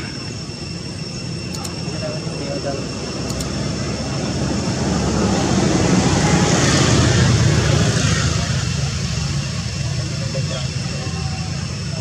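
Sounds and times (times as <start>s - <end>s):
vehicle passing by: 4.2s - 8.7s.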